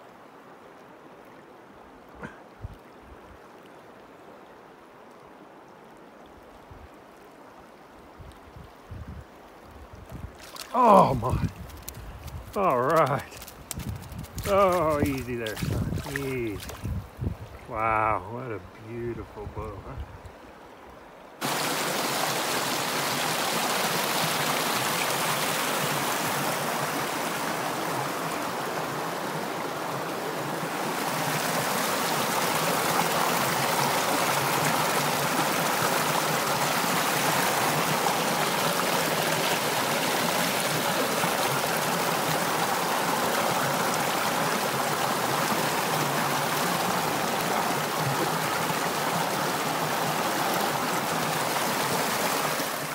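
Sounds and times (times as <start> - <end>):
river water rushing over boulders: 10.2 - 18.7, 20.3 - 52.9.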